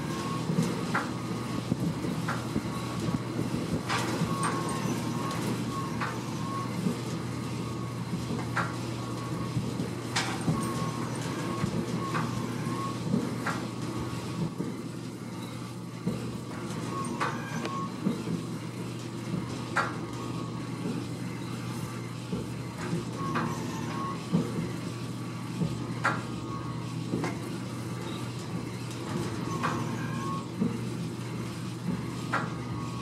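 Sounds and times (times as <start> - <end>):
pumpjack drive hum: 0.0 - 33.0
short squeak: 4.4 - 6.0, 16.9 - 18.0, 23.3 - 24.2, 29.4 - 30.5.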